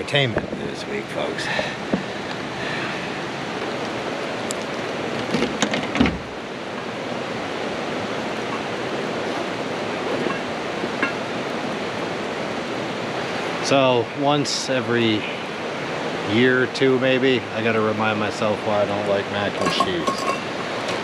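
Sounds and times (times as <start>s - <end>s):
running water rushing: 0.0s - 21.0s
knocks and clatters: 5.2s - 6.2s.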